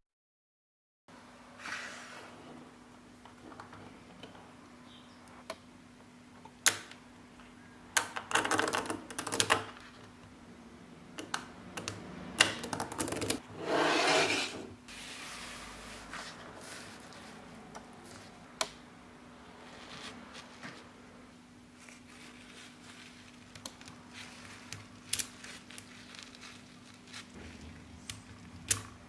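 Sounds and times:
rustling scrape: 13.5s - 18.4s, 19.5s - 21.0s, 21.7s - 23.5s.

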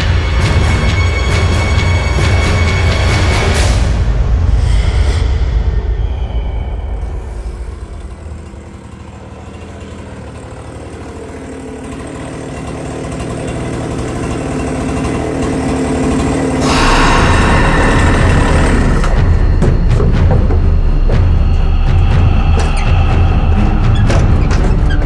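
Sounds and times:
chainsaw engine running: 7.4s - 25.0s.

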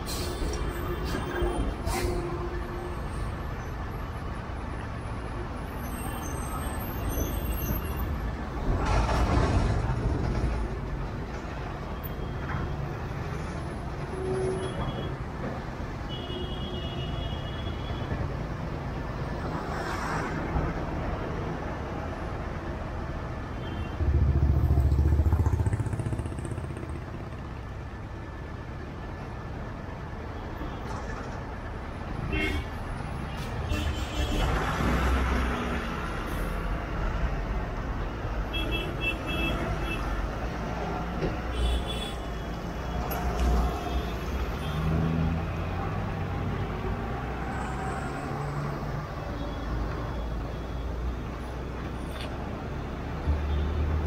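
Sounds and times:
idling truck and motorcycle engines: 24.1s - 30.3s.

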